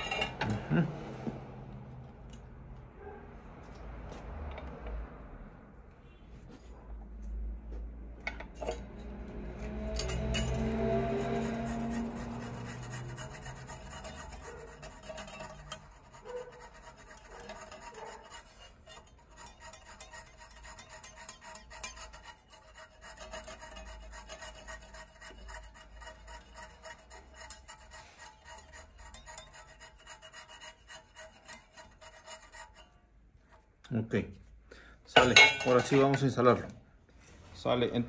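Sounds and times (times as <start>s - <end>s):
hand file rasping on metal: 8.5s - 34.5s.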